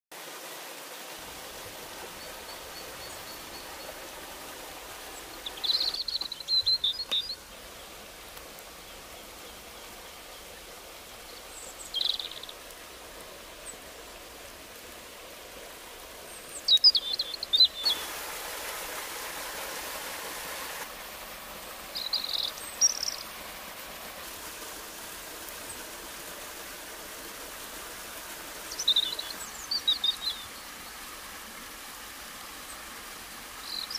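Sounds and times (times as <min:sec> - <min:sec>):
stream and small waterfall rushing: 0:00.1 - 0:33.9
birds chirping: 0:01.8 - 0:07.8, 0:08.8 - 0:12.7, 0:16.2 - 0:20.8, 0:21.9 - 0:23.4, 0:28.6 - 0:30.9.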